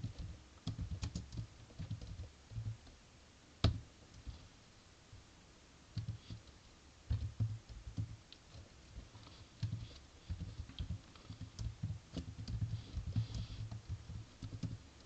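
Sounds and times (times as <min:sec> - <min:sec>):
computer keyboard typing: 0:00.0 - 0:02.8, 0:07.1 - 0:14.8.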